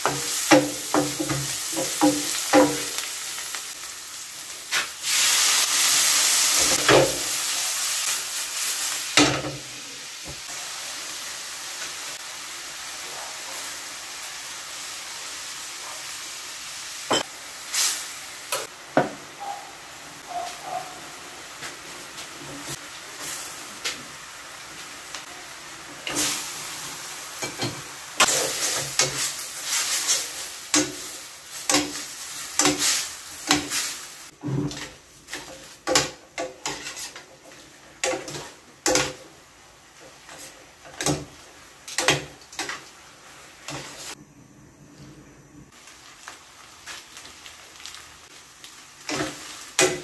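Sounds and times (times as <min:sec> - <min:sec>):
shrimp sizzling in a frying pan: 0:00.0 - 0:44.2, 0:45.7 - 0:50.0
tongs clacking and scraping a pan: 0:27.4 - 0:34.0, 0:34.6 - 0:39.2.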